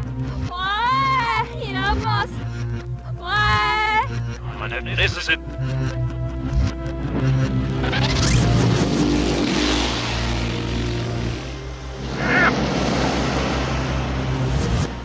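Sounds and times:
background music: 0.0 - 15.0
reversed cartoon engine rushing: 7.8 - 15.0.

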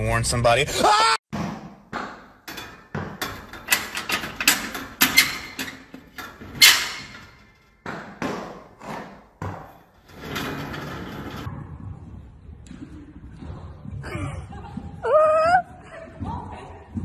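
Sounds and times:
metal stall door knocking and rattling: 2.4 - 8.5.

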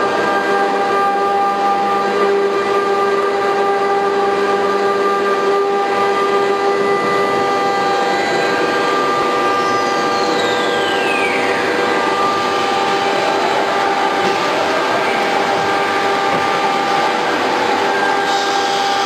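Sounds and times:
router spindle high whine: 0.0 - 19.0
rushing cutting noise: 5.0 - 19.0.

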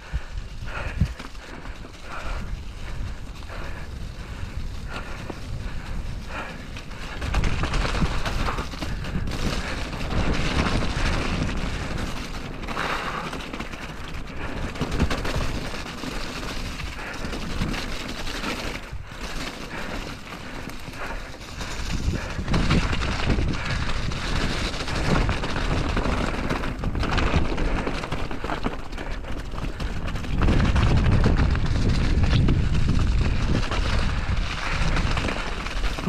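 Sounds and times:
bike chain and frame rattling: 0.0 - 36.0
bike tyres rolling over mud and stones: 0.0 - 36.0
wind on microphone: 2.0 - 12.1, 21.0 - 28.0, 29.8 - 36.0.

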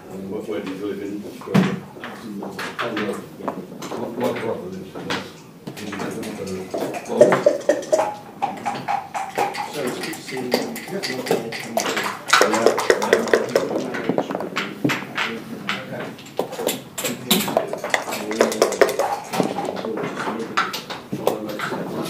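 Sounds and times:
pieces clicking on wooden board: 5.8 - 21.8
dice rolling on board: 17.4 - 19.7.

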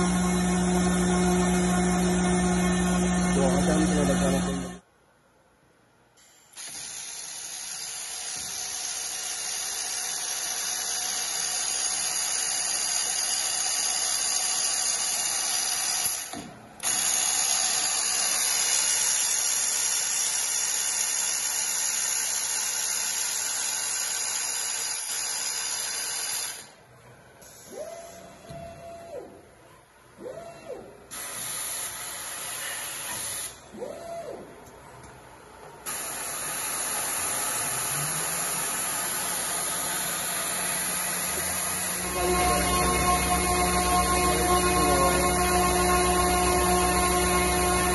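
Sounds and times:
router spindle whirring in wood: 36.2 - 47.9.

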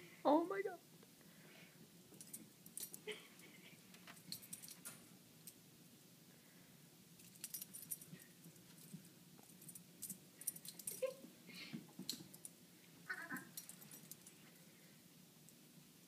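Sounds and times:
faint clicks and light jingling: 2.1 - 5.6, 7.2 - 11.2, 13.5 - 14.6.

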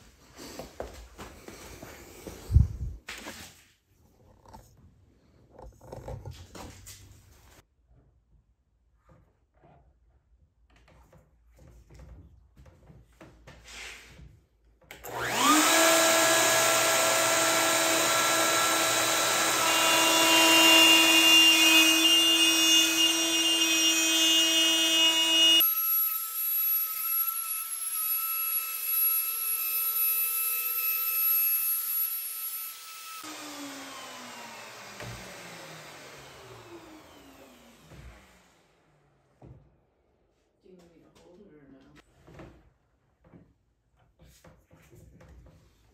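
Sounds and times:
router whining and cutting wood: 14.9 - 40.0.

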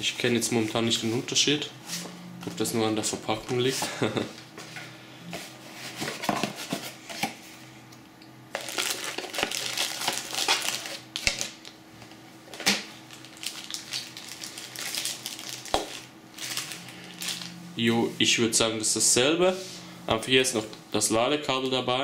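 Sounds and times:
plastic bags rustling: 8.5 - 17.6.

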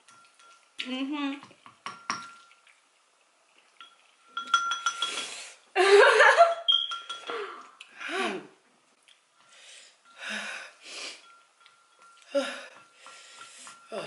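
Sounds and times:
chopsticks clinking on ceramic bowls: 0.0 - 0.8, 3.8 - 5.4, 6.4 - 7.5, 11.2 - 14.0.

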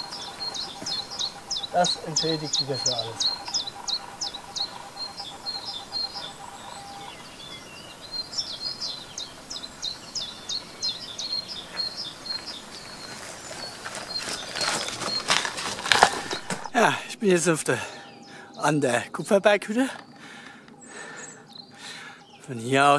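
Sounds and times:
footsteps: 0.0 - 2.0, 11.7 - 17.2
songbirds chirping: 0.0 - 22.9.

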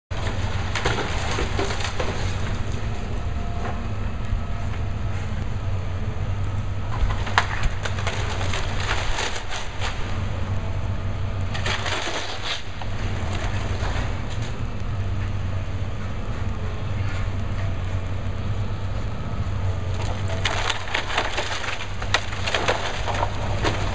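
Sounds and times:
excavator engine drone: 0.1 - 23.9
breaking blocks crunching: 0.2 - 3.0, 7.0 - 10.2, 11.5 - 14.5, 20.0 - 23.9.

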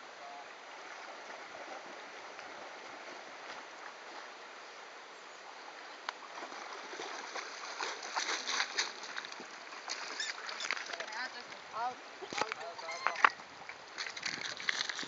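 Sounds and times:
river water running: 0.0 - 15.0
small splashes from swimming: 6.2 - 11.6, 12.3 - 15.0.

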